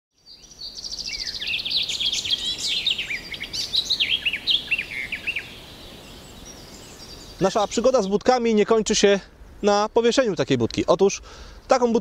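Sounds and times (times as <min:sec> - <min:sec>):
songbirds singing: 0:00.1 - 0:10.3.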